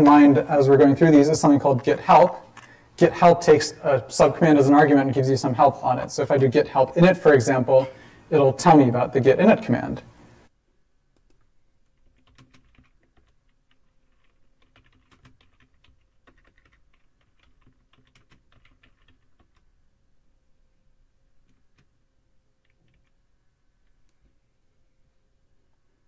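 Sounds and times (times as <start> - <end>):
faint keyboard typing: 11.1 - 19.8, 21.4 - 22.0, 22.6 - 24.4.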